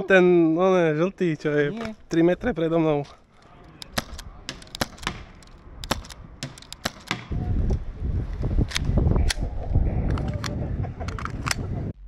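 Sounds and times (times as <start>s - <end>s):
airsoft pistol shots clicking: 3.8s - 7.3s.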